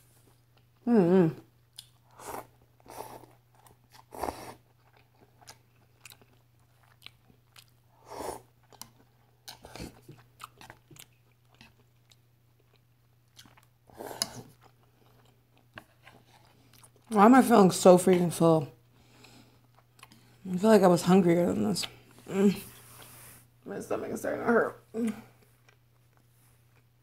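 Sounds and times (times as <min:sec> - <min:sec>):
wet chewing and smacks: 0:01.6 - 0:17.1, 0:19.2 - 0:20.4.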